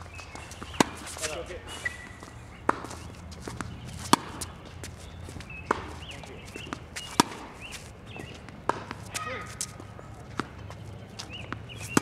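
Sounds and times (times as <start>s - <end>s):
footsteps on court: 0.0s - 12.0s
racket striking tennis ball: 0.5s - 12.0s
ball bouncing: 2.6s - 7.6s, 8.4s - 12.0s.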